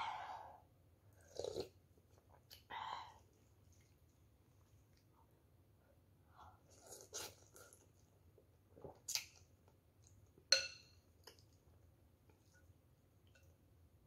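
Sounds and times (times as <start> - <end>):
noodle slurp: 6.7 - 7.8
metal spoon clinking bowl: 10.5 - 11.0.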